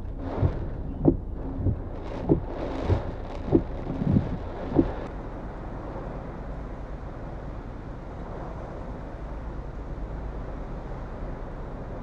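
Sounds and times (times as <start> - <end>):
heavy wind-driven rain: 0.0 - 12.0
hurricane wind: 0.0 - 12.0
wind rumbling on microphone: 0.0 - 12.0.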